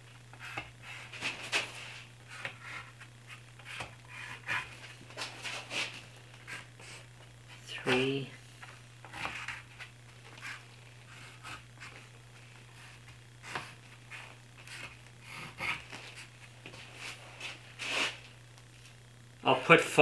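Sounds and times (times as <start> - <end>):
steady low hum: 0.0 - 20.0
pencil scratching on wood: 0.4 - 1.1, 2.3 - 4.8, 5.5 - 7.1, 9.1 - 9.7, 10.3 - 12.1, 12.7 - 16.3.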